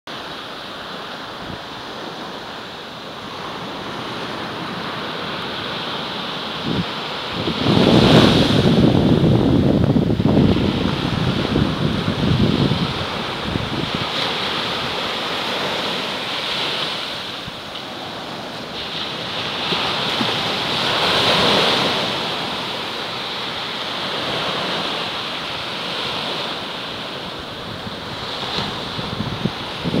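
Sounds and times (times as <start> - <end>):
waves breaking on sandy beach: 0.1 - 30.0
low wind rumble on microphone: 3.4 - 16.0, 23.6 - 30.0.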